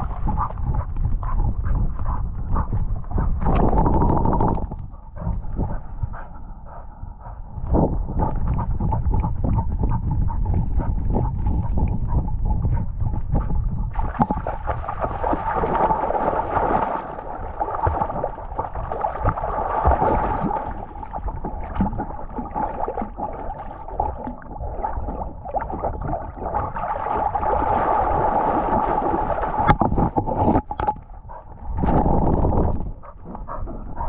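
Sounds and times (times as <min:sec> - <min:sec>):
water sloshing and gurgling: 0:00.0 - 0:34.0.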